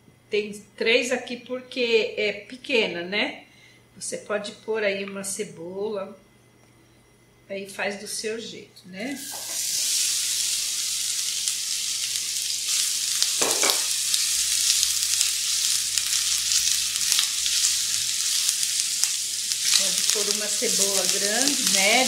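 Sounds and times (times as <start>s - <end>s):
onions sizzling in oil: 9.2s - 22.0s.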